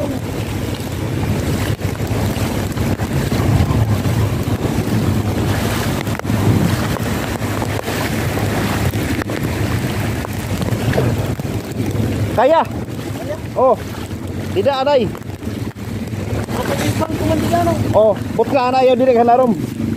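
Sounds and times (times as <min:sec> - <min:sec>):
floodwater rushing: 0:00.0 - 0:19.9
wind buffeting microphone: 0:00.0 - 0:19.9.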